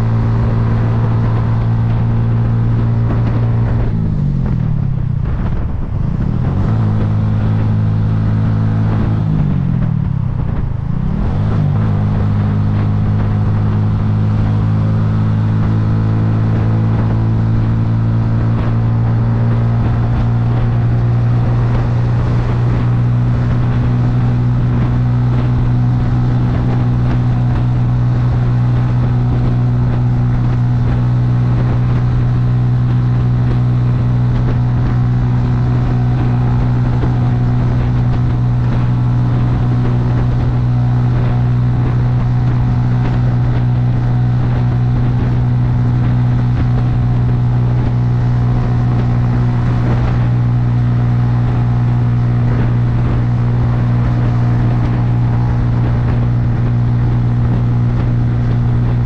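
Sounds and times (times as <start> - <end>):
motorcycle engine running: 0.0 - 59.0.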